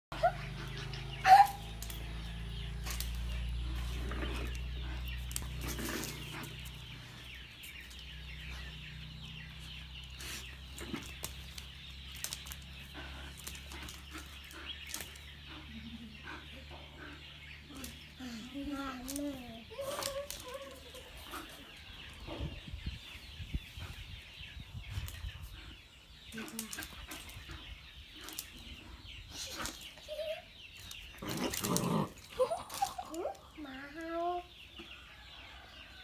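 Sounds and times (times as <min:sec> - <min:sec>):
claws clicking on tiled floor: 0:10.2 - 0:15.2, 0:19.0 - 0:21.0, 0:30.8 - 0:33.4.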